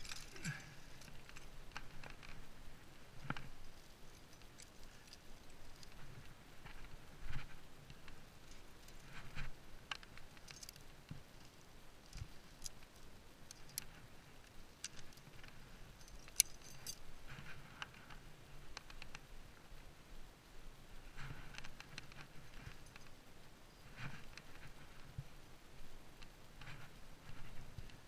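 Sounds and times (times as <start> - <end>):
metal climbing gear clinking: 0.0 - 2.4, 3.2 - 6.9, 8.4 - 17.5, 21.6 - 23.9.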